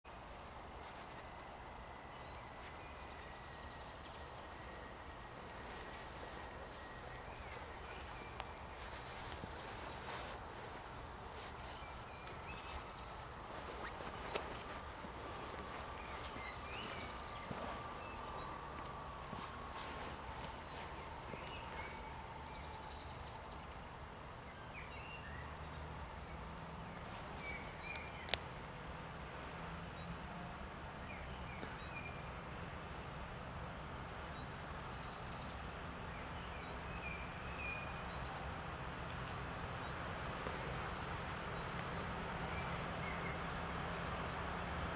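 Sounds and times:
birds chirping: 0:00.1 - 0:32.5, 0:34.2 - 0:44.9
distant diesel locomotive rumble: 0:00.5 - 0:24.4, 0:37.4 - 0:44.9.

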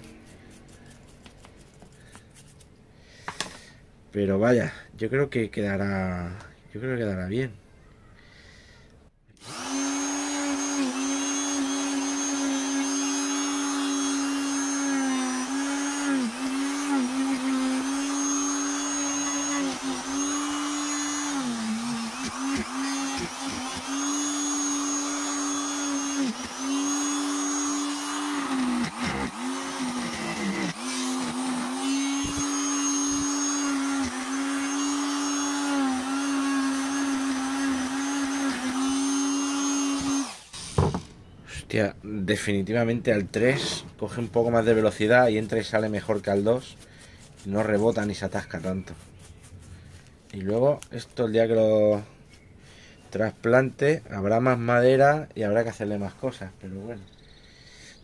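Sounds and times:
electric grinder whining: 0:09.4 - 0:41.1.

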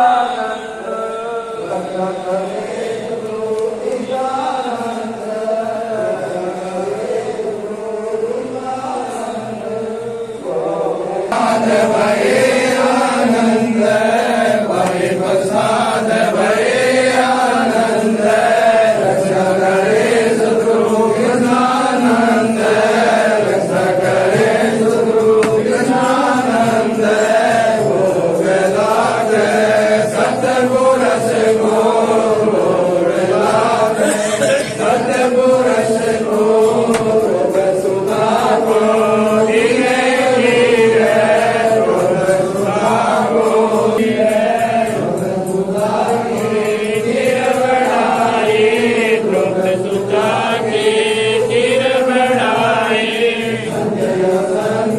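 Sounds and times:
voices singing slow chant: 0:00.0 - 0:54.9.

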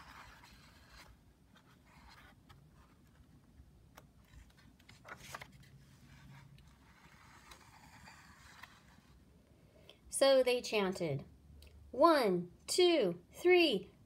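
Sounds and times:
paper page turning: 0:00.0 - 0:03.4, 0:04.0 - 0:09.1.

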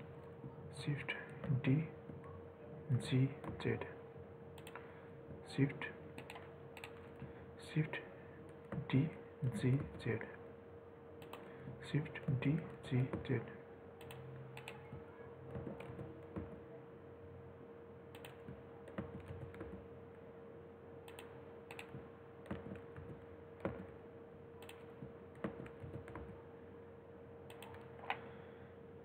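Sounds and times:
faint steady hum: 0:00.0 - 0:29.0
computer keyboard keys clicking: 0:04.6 - 0:04.8, 0:06.2 - 0:07.1, 0:14.0 - 0:14.9, 0:18.1 - 0:19.8, 0:21.1 - 0:23.9, 0:24.6 - 0:26.4, 0:27.5 - 0:28.2.

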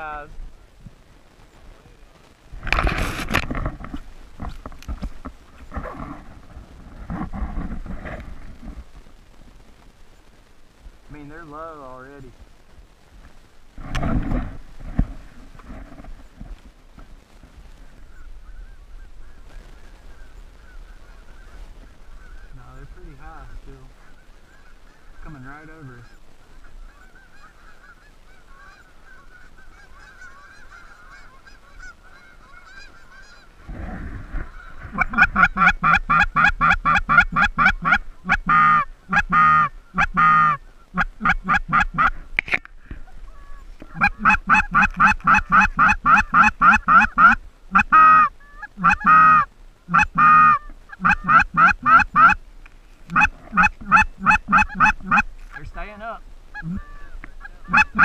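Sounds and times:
geese honking: 0:17.8 - 0:52.4, 0:53.1 - 0:58.0.

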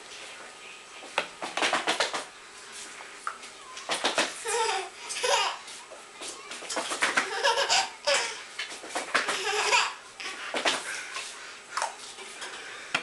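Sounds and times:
toddler laughing: 0:04.4 - 0:05.6, 0:07.2 - 0:08.5, 0:09.3 - 0:10.4.

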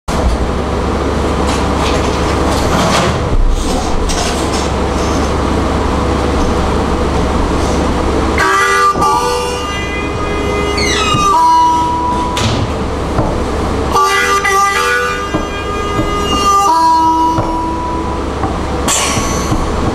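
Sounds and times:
moving train rumble: 0:00.1 - 0:19.9
harmonica chords: 0:07.9 - 0:19.9.

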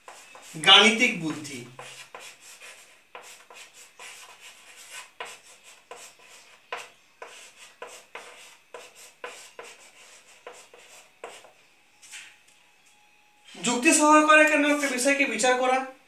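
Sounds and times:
chalk writing on a blackboard: 0:00.0 - 0:12.3.

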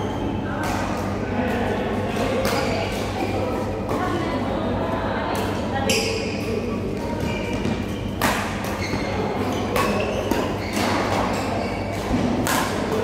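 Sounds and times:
badminton racket hitting shuttlecock: 0:07.6 - 0:13.0.

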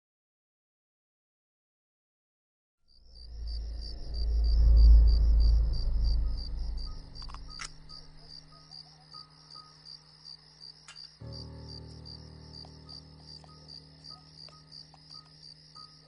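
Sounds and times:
crickets chirping: 0:02.9 - 0:16.0
deep rumble: 0:03.0 - 0:08.6
low steady drone: 0:03.0 - 0:09.8, 0:11.2 - 0:16.0.

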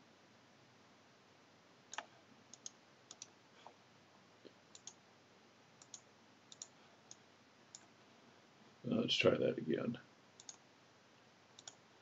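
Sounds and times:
mouse buttons clicking: 0:01.9 - 0:03.3, 0:04.7 - 0:05.0, 0:05.8 - 0:07.9, 0:10.4 - 0:10.6, 0:11.6 - 0:11.8.

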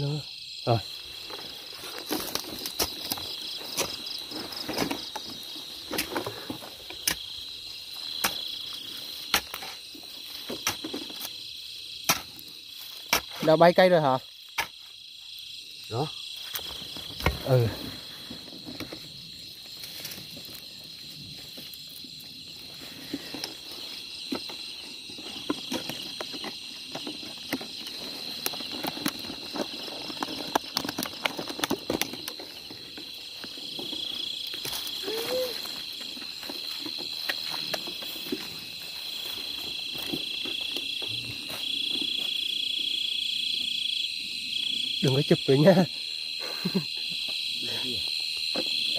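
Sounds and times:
crickets trilling: 0:00.0 - 0:48.9
lower cricket trill: 0:00.0 - 0:48.9
rustling and clicking in dry grass: 0:01.1 - 0:13.1, 0:16.4 - 0:42.6.

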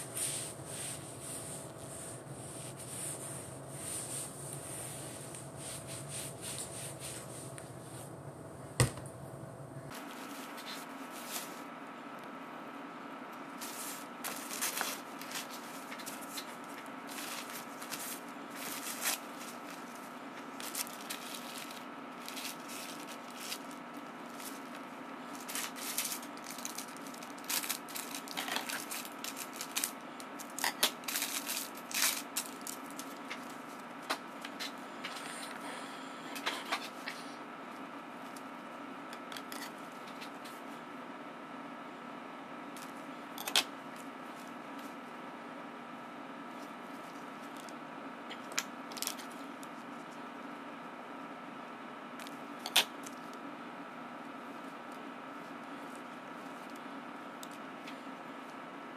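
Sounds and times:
steady background hum: 0:00.0 - 0:58.9
paper and plastic bag crinkling: 0:13.6 - 0:33.8.

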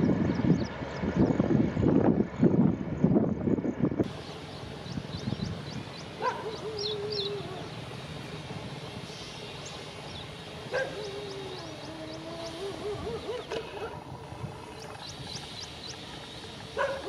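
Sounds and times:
small birds chirping: 0:04.1 - 0:17.0
wavering animal calls: 0:06.2 - 0:08.0, 0:10.6 - 0:14.3.

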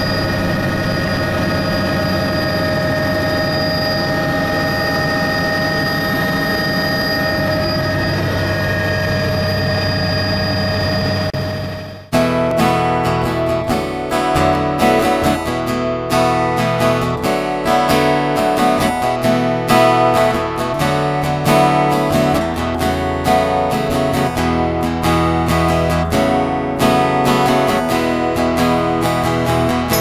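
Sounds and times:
acoustic guitar strumming: 0:12.1 - 0:30.0.

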